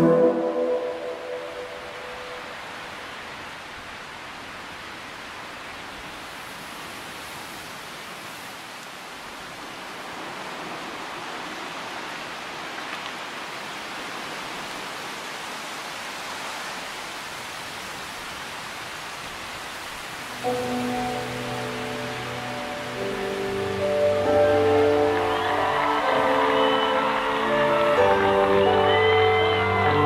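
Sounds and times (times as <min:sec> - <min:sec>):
sustained music chord: 0:00.0 - 0:02.6, 0:20.3 - 0:30.0
steady rushing noise: 0:00.0 - 0:30.0.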